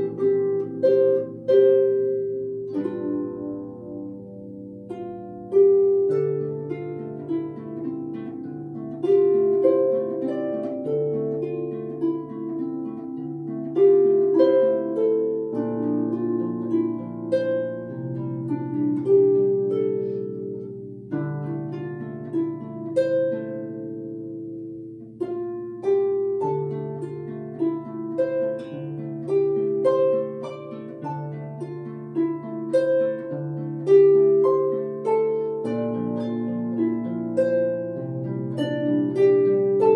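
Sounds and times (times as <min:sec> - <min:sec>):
solo harp playing: 0:00.0 - 0:39.9.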